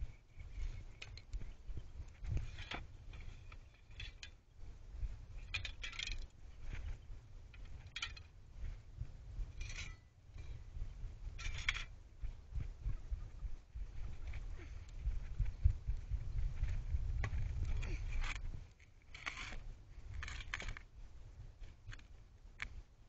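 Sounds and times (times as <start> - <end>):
steady low rumble: 0.0 - 18.7.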